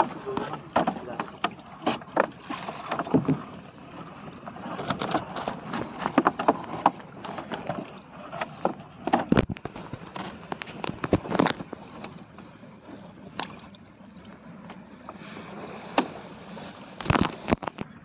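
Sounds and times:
water lapping against boat hull: 0.0s - 18.0s
fishing net knocks and rustles: 4.7s - 12.1s, 17.0s - 17.9s.

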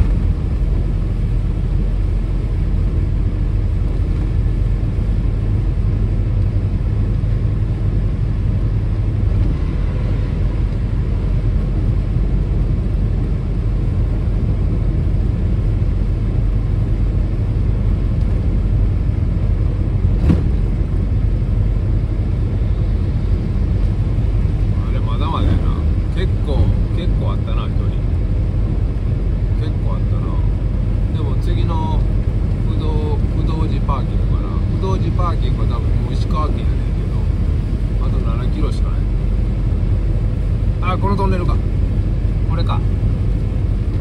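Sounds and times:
car driving on wet road: 0.0s - 44.0s
sharp knock: 20.2s - 20.6s.

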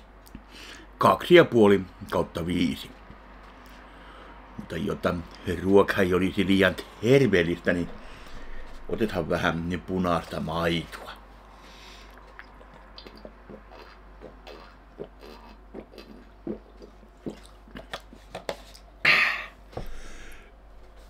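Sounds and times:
man breathing out: 8.0s - 8.8s, 19.1s - 20.6s
man swallowing milk: 12.1s - 19.4s.

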